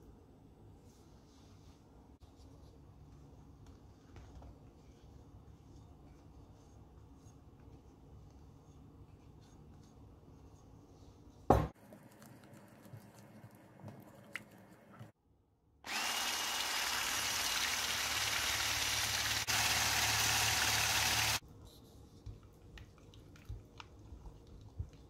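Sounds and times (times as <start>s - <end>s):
electric mixer beating batter: 15.9s - 21.4s.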